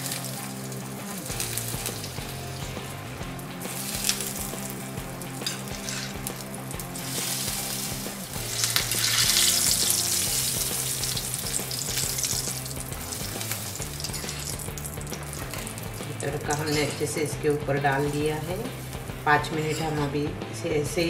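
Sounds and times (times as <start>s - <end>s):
hot oil sizzling: 0.0s - 20.2s.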